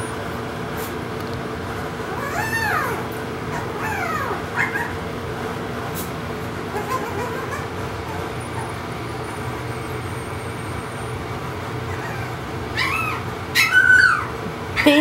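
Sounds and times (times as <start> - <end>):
puppies whining: 2.0 - 5.2, 6.5 - 15.0.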